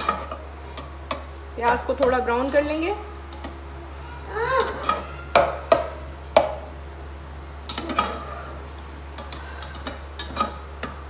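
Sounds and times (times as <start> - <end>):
spoon knocking metal pot: 4.6 - 6.7.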